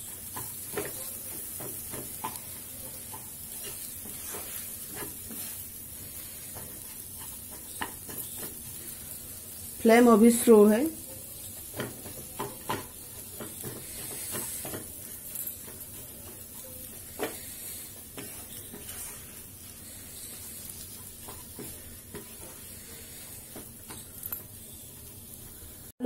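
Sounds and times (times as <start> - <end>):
wooden spatula scraping a pan: 0.0 - 25.9
faint sizzle: 0.0 - 26.0
spatula knocking against pan: 0.3 - 3.8, 11.6 - 14.9.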